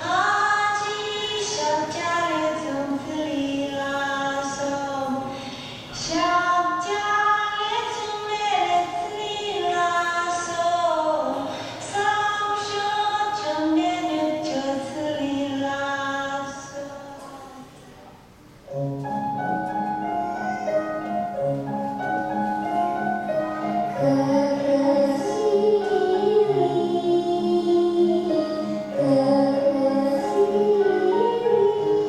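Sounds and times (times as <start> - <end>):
children's choir singing: 22.3 - 32.0.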